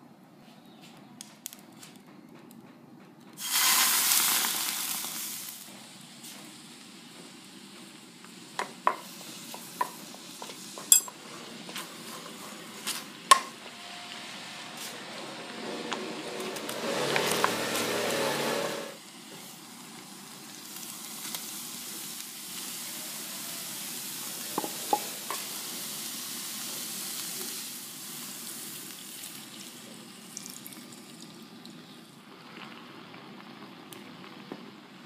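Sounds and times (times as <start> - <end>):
liquid sizzling in hot pan: 3.4 - 5.7, 7.5 - 35.0
faint hiss of heating pan: 3.4 - 35.0.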